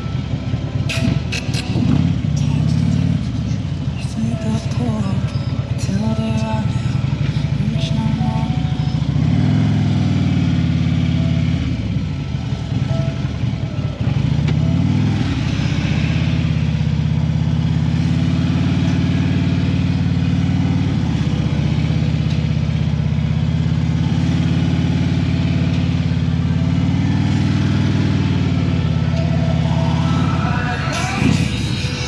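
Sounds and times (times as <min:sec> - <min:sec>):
motorcycle engine at low revs: 0:00.0 - 0:30.3.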